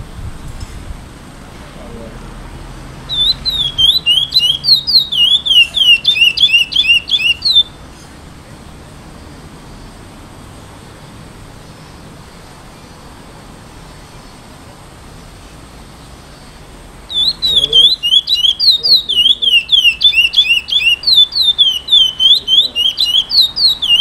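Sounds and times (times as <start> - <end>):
finch whistled song: 3.1 - 7.8, 17.1 - 24.0.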